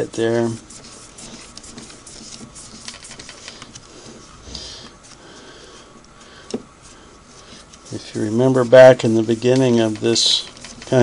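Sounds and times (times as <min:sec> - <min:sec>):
cloth rag rubbing metal: 0:00.0 - 0:04.4, 0:06.8 - 0:11.0.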